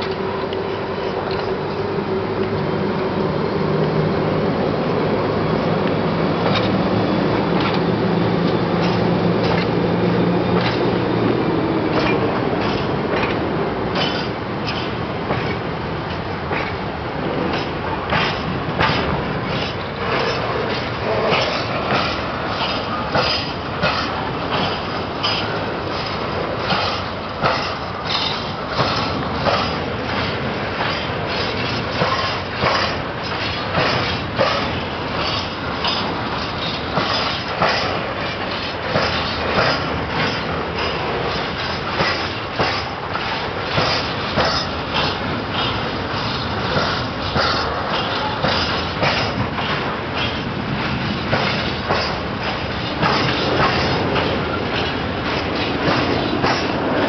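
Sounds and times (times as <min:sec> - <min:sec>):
freight train rumble and rattle: 0:00.0 - 0:57.0.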